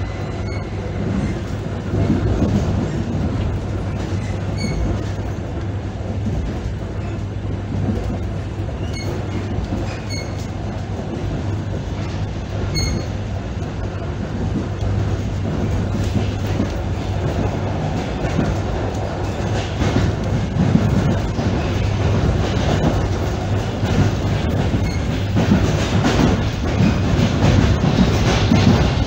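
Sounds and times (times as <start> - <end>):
train wheels rumbling on rails: 0.0 - 29.0
short high squeaks: 9.9 - 10.5.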